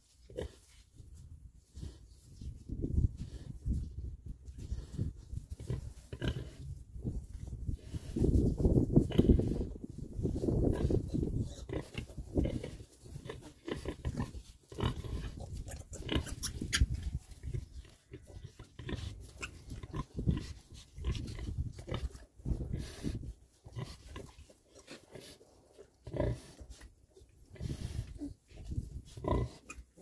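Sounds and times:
pigs grunting: 0:04.8 - 0:06.7, 0:10.7 - 0:25.4, 0:26.0 - 0:26.8, 0:27.5 - 0:30.0.

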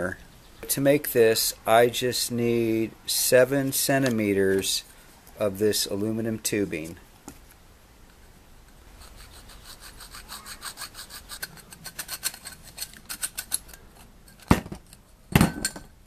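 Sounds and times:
hand saw cutting aluminium tubing: 0:09.1 - 0:13.6.

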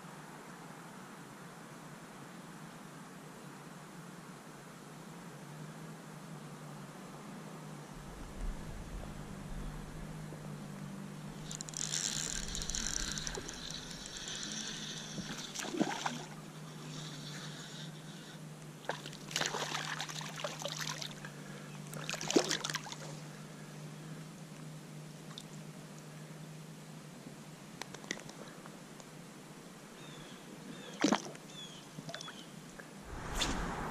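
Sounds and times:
fishing reel cranking: 0:11.4 - 0:15.6.

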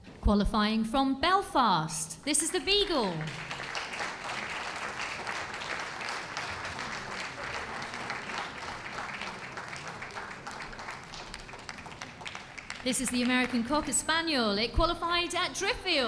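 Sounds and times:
audience applauding: 0:03.0 - 0:13.7.

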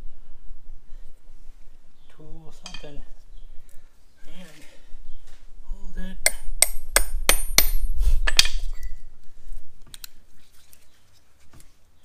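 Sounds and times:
hammer striking metal: 0:06.2 - 0:08.6
faint clicks of parts handled: 0:09.2 - 0:11.9.

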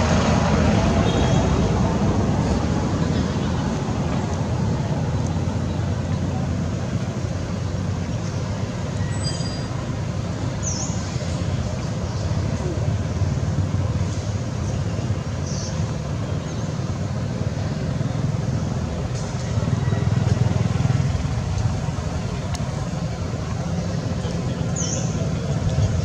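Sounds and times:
low outdoor rumble: 0:09.6 - 0:26.0.

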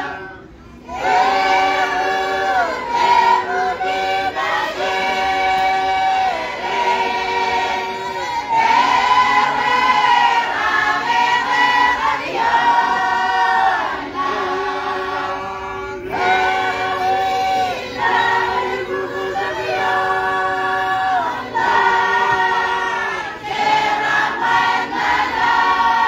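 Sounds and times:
choir singing long held notes: 0:00.0 - 0:26.0.

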